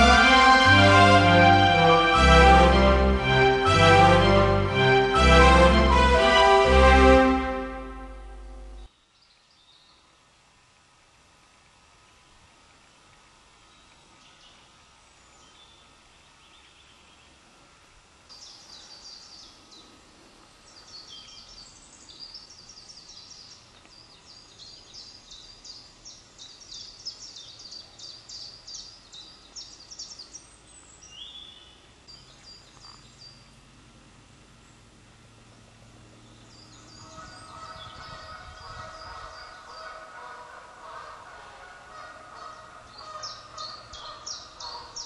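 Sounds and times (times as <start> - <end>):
faint outdoor background: 0.0 - 45.0
small songbirds singing: 18.3 - 33.6, 36.1 - 40.3, 42.0 - 45.0.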